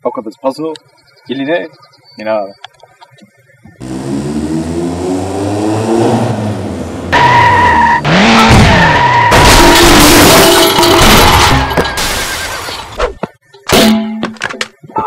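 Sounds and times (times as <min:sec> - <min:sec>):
tyres screeching: 0:03.7 - 0:13.2
car engine revving: 0:03.8 - 0:11.8.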